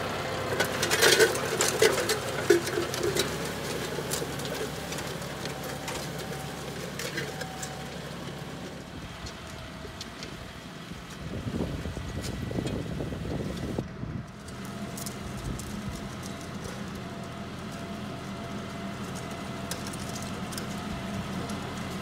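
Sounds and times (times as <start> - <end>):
tractor diesel engine running: 0.0 - 22.0
metal clanks and rattles: 0.5 - 6.4.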